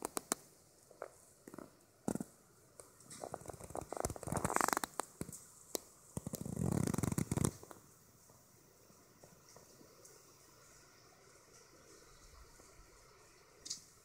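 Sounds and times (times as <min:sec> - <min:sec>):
dry pine needles crackling: 0:03.0 - 0:07.9.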